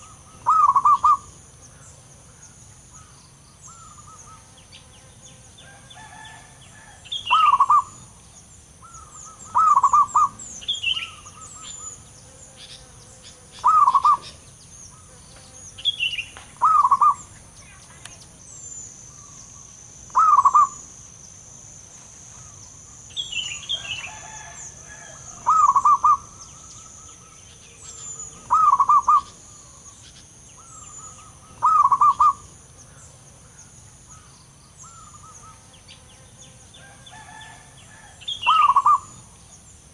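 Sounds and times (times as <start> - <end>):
dove trilled coos: 0.0 - 4.9, 5.6 - 17.6, 18.6 - 21.0, 22.3 - 36.0, 36.8 - 39.5
faint high chirping: 5.6 - 21.3, 21.9 - 32.6, 38.3 - 39.6.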